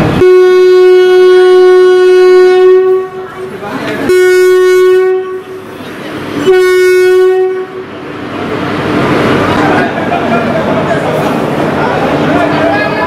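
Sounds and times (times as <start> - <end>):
locomotive horn blasts: 0.1 - 3.5, 4.1 - 5.6, 6.4 - 7.8.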